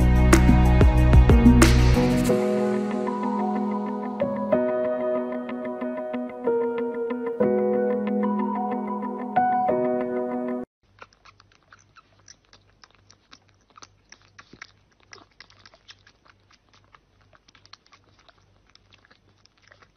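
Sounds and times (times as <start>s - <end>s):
kitten suckling wet smacking clicks: 10.8s - 19.9s.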